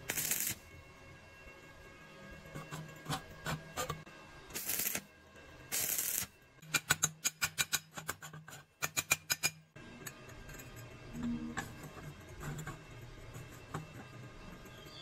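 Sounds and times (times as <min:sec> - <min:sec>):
welding arc crackle: 0:00.0 - 0:00.7, 0:04.5 - 0:05.1, 0:05.7 - 0:06.3.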